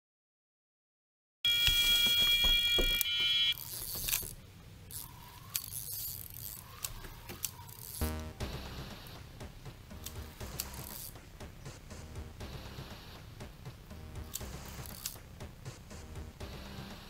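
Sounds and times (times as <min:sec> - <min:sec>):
electronic bite alarm tone: 0:01.5 - 0:03.6
faint handling clicks: 0:03.6 - 0:08.0.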